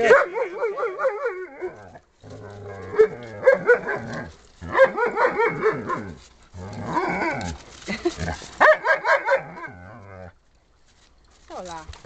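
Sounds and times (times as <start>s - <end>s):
dogs play growling: 1.5s - 8.6s, 9.4s - 10.4s.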